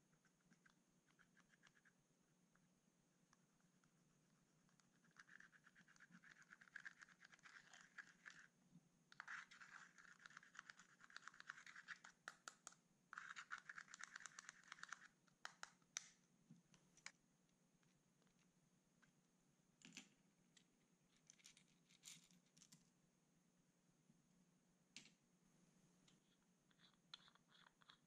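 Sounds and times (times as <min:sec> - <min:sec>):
fingernails scratching eyeshadow: 0:04.7 - 0:08.5, 0:09.2 - 0:12.3, 0:13.2 - 0:15.6, 0:26.7 - 0:28.0.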